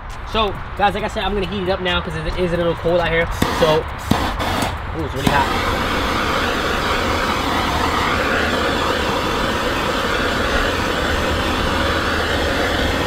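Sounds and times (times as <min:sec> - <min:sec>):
blowtorch hissing: 0:03.4 - 0:13.0.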